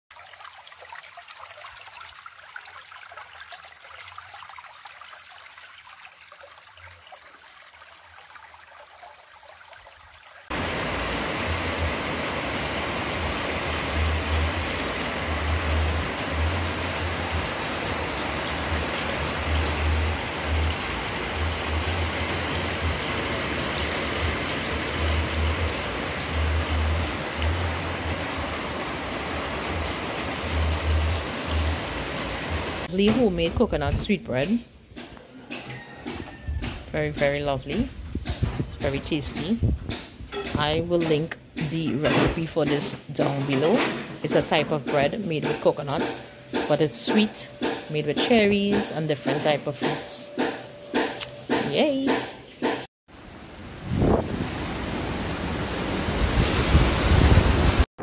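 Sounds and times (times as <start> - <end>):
stream trickling over rocks: 0.1 - 32.9
rush of water: 0.1 - 33.0, 53.1 - 57.9
wind buffeting microphone: 37.7 - 40.9, 53.7 - 57.8.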